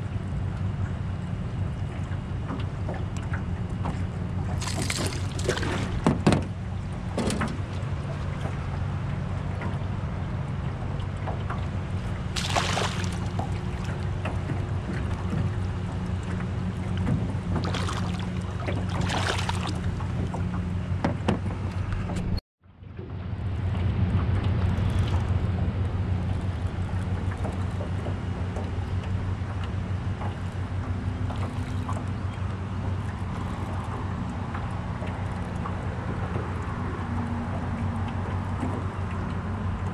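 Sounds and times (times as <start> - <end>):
steady low hum: 0.0 - 39.9
fish splashing at surface: 4.6 - 6.0, 12.3 - 14.0, 17.6 - 19.9.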